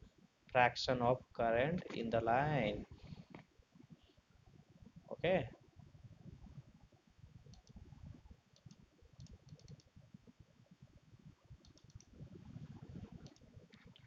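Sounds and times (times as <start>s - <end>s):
soft clicks: 7.5s - 7.8s, 8.5s - 9.9s, 11.6s - 12.2s, 13.0s - 14.0s.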